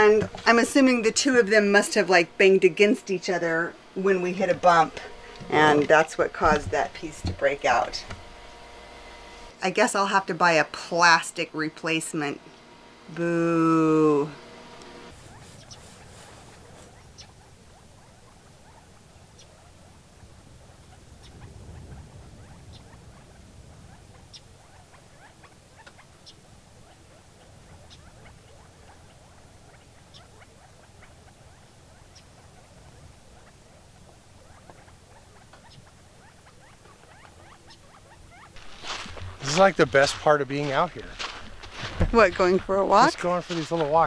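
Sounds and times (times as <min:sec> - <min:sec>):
small birds chirping: 0:14.0 - 0:44.0.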